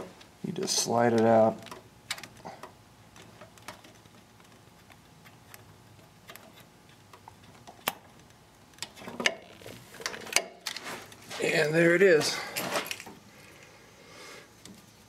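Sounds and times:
rattling clicks of switch: 1.1s - 4.0s.

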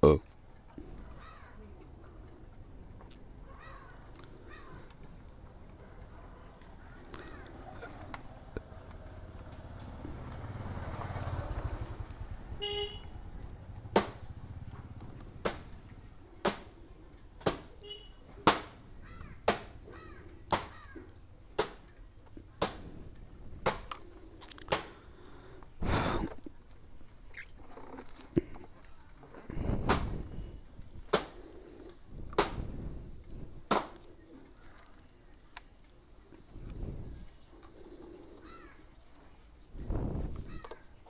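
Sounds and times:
vehicle horn toot: 12.6s - 13.2s, 17.8s - 18.2s.

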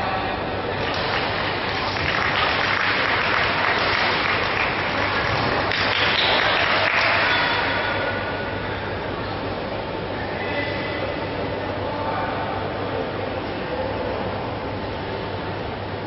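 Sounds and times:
applause: 0.8s - 7.9s.

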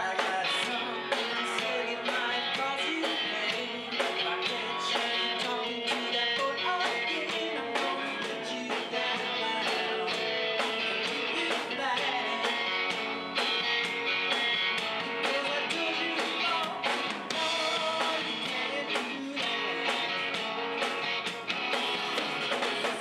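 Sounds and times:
drum kit steady beat: 0.0s - 23.0s
electric guitar: 0.0s - 23.0s.

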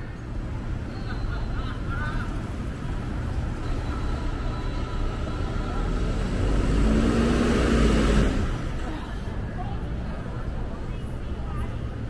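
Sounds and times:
vehicle engine rumble passing: 1.4s - 9.4s.

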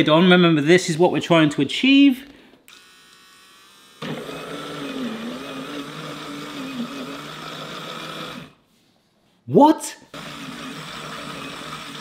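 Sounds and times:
drink mixer motor whirring: 2.7s - 8.6s, 10.1s - 12.0s.

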